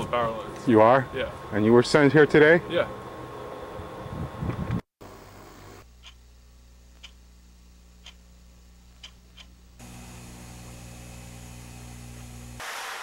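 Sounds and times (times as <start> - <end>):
steady hum: 0.0 - 13.0
clock ticking: 6.0 - 6.2, 7.0 - 7.2, 8.0 - 8.2, 9.0 - 9.5.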